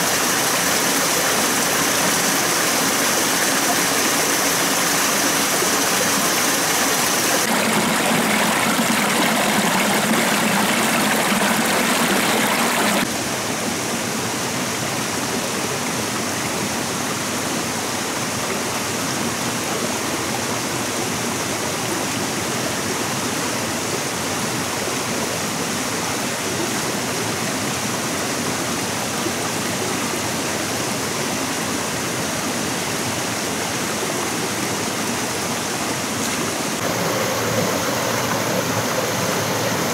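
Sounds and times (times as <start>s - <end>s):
stream water flowing: 0.0s - 39.9s.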